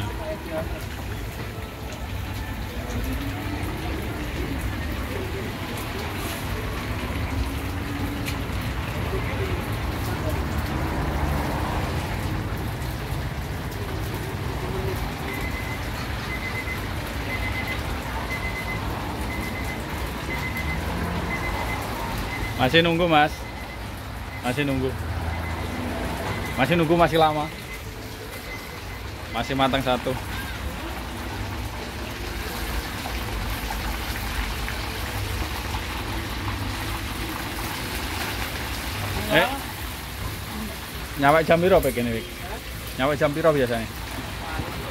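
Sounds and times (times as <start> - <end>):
chicken sizzling in deep fryer oil: 0.0 - 44.9
high electronic beep: 15.2 - 30.4.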